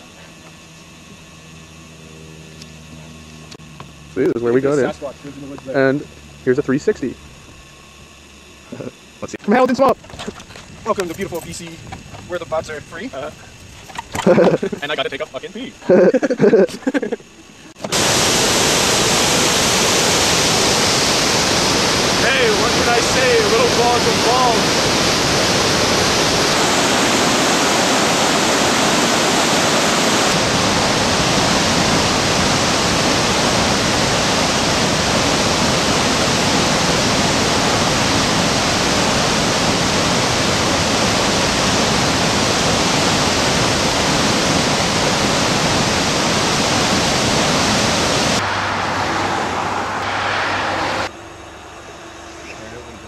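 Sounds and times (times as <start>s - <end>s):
waterfall and rapids rushing: 25.6s - 51.1s.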